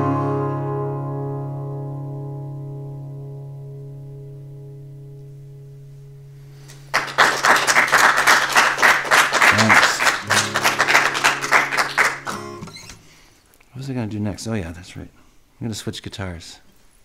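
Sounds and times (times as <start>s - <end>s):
acoustic guitar chord ringing: 0.0s - 7.4s, 8.2s - 13.3s
group clapping: 6.7s - 13.0s
voices cheering: 7.7s - 12.6s.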